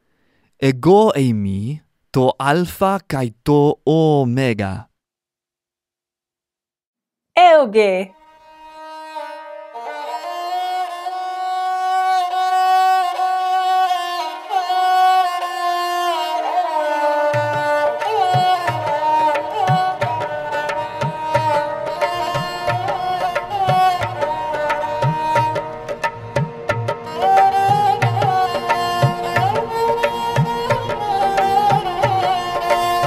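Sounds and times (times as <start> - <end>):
held melody with sliding notes: 16.3 - 33.0.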